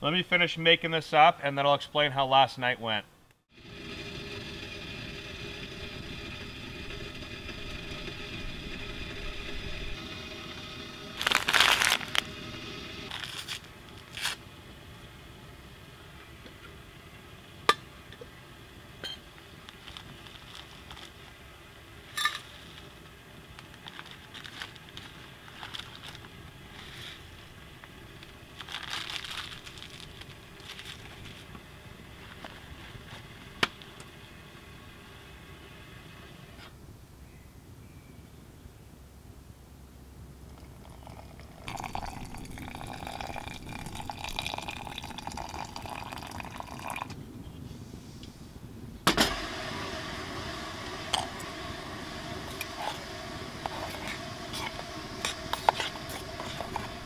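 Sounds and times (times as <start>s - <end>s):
camp stove hissing: 3.5s - 14.4s, 40.8s - 47.0s, 49.1s - 57.0s
camp cookware scraping and clicking: 22.2s - 22.6s, 52.5s - 57.0s.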